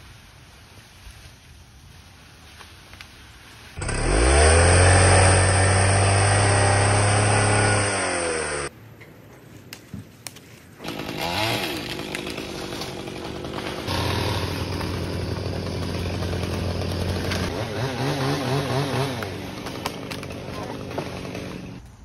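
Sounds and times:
chainsaw revving: 3.8s - 8.7s, 10.8s - 21.8s
faint chainsaw running: 3.8s - 8.7s, 10.8s - 21.8s.

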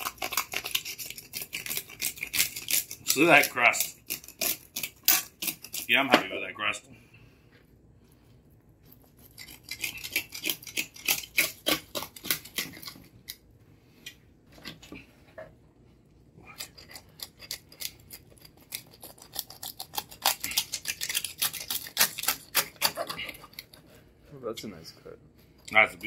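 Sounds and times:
knife crunching crackling skin: 0.0s - 6.1s, 8.9s - 13.4s, 16.5s - 23.8s.

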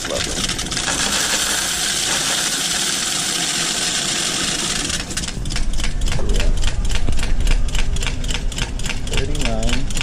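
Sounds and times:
coins rattling in counting machine: 0.0s - 6.5s
machine motor hum: 0.0s - 10.0s.

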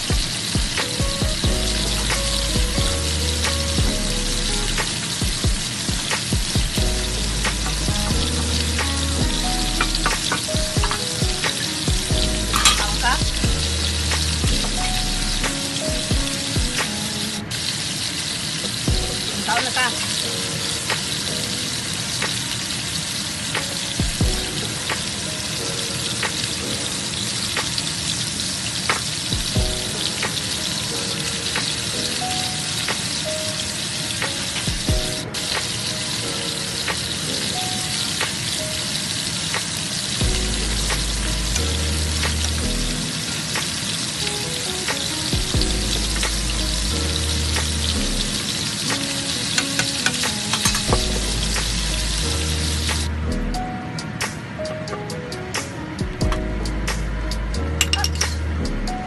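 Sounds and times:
background music with bass: 0.0s - 16.9s, 40.2s - 43.2s, 45.4s - 49.2s, 50.3s - 54.3s, 56.0s - 59.0s
food sizzling in a frying pan: 9.8s - 14.9s, 15.6s - 53.1s.

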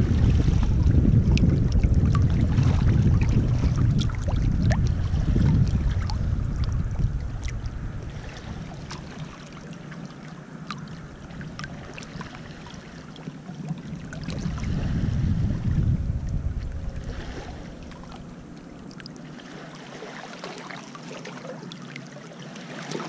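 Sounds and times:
low rumble: 0.0s - 13.1s, 13.8s - 19.3s
little splashes and drips: 18.8s - 23.0s
small waves lapping on pebbles: 19.0s - 23.0s.

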